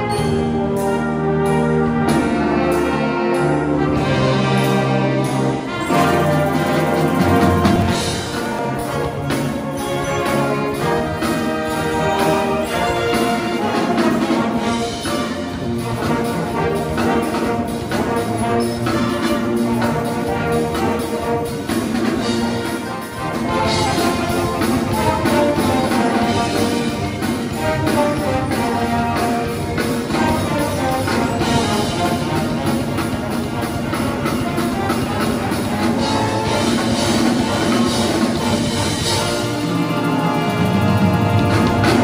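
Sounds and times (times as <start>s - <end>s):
military band playing: 0.0s - 42.0s
drum kit steady beat: 10.3s - 42.0s.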